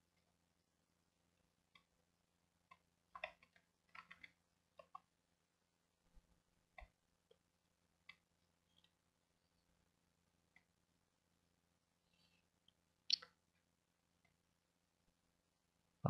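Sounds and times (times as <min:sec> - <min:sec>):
mouse and keyboard clicks: 0:02.7 - 0:05.1.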